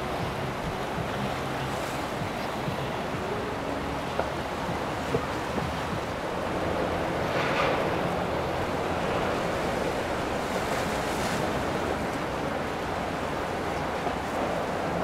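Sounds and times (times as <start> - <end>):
rushing water: 0.0 - 15.0.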